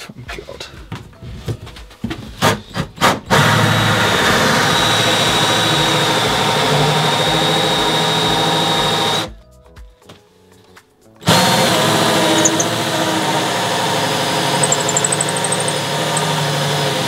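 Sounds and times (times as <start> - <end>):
cordless drill whining under load: 3.3 - 9.3, 11.2 - 17.0
short drill clicks: 11.2 - 13.2, 14.4 - 16.5.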